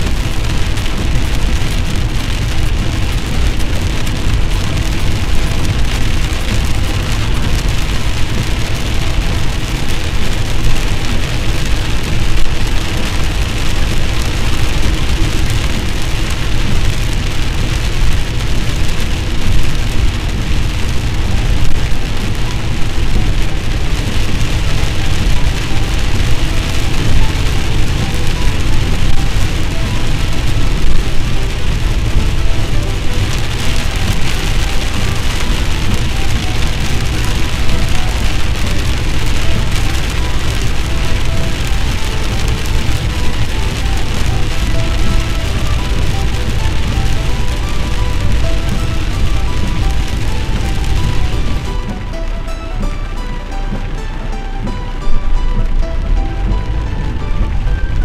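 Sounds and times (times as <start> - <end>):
car driving on wet road: 0.0 - 58.0
heavy rain drumming on car roof: 0.0 - 58.0.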